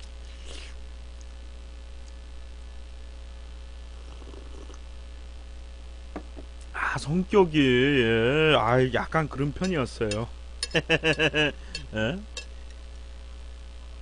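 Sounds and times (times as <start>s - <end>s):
low electrical hum: 0.0s - 14.0s
sip from a cup: 0.2s - 0.8s, 4.0s - 4.8s.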